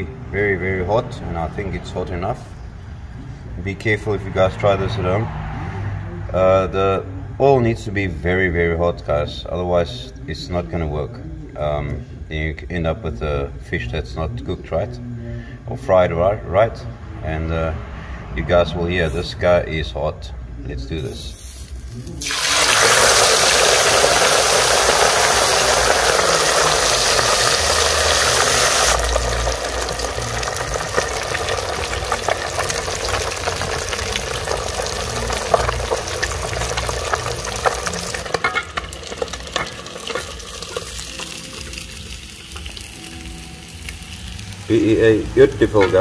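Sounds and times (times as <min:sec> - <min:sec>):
fish deep-frying in hot oil: 0:21.6 - 0:46.0.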